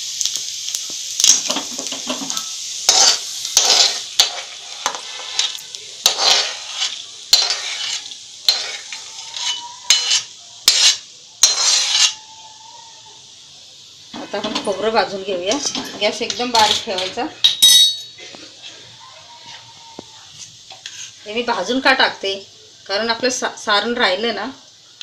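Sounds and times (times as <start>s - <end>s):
hot oil sizzling: 0.0s - 25.0s
metal spatula scraping a pan: 1.3s - 12.3s, 14.2s - 21.3s.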